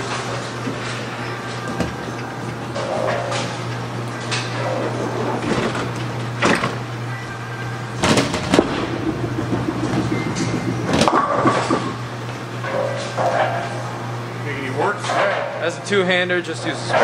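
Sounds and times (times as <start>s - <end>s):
bowling pins clattering: 0.0s - 7.0s, 7.9s - 13.9s
steady low hum: 0.0s - 17.0s
bowling ball rolling: 7.9s - 13.8s.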